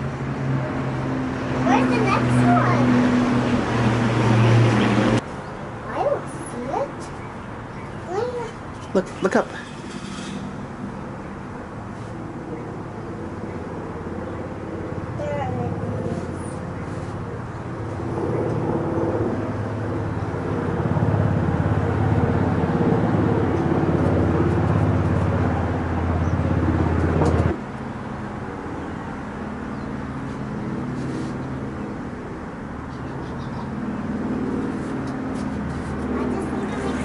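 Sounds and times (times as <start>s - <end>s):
propeller plane engine droning: 0.0s - 37.0s.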